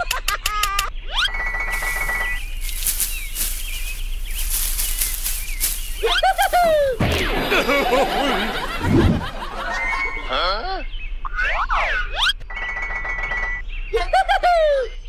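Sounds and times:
wing flapping: 1.7s - 9.5s.

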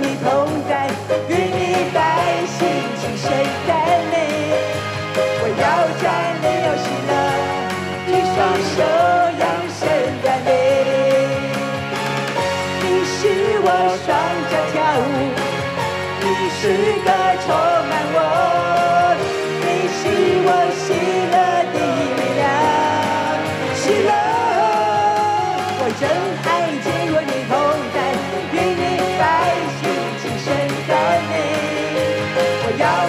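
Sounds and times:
woman singing into a microphone: 0.0s - 4.6s, 12.8s - 15.5s, 16.2s - 32.0s
electronic keyboard: 0.0s - 33.0s.

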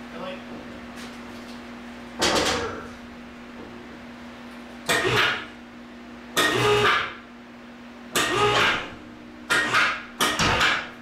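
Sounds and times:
steady hum: 0.0s - 11.0s
electric hoist motor: 6.4s - 7.2s, 8.1s - 10.8s.

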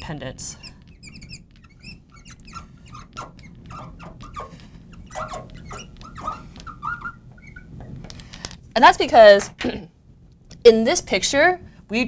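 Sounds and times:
marker squeaking on glass: 0.4s - 8.0s.

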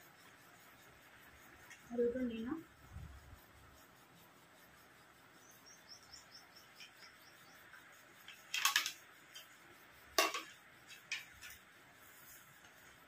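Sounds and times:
plate clicking: 8.3s - 9.5s, 10.2s - 11.6s
dishes clattering: 10.2s - 11.3s.

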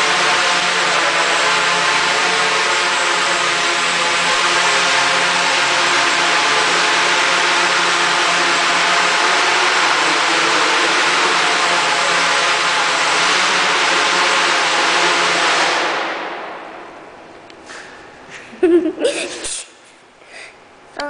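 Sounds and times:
quadcopter motors droning: 0.0s - 14.3s.

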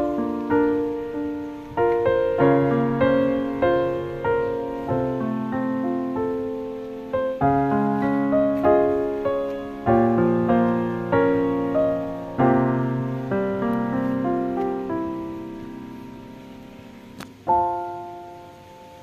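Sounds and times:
slow piano piece: 0.0s - 19.0s.

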